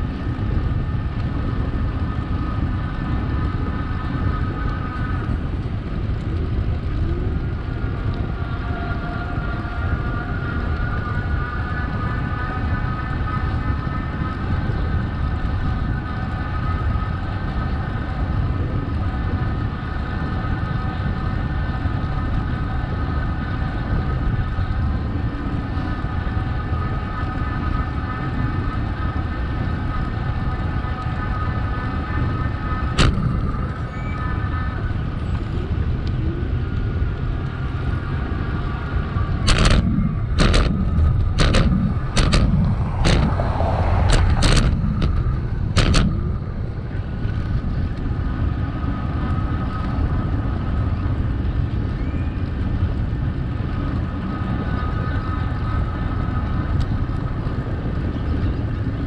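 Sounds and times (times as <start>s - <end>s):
bicycle road rumble: 0.0s - 59.0s
steady hum: 0.0s - 59.0s
wind on microphone: 0.0s - 59.0s
sharp click: 39.5s - 40.7s, 41.4s - 43.4s.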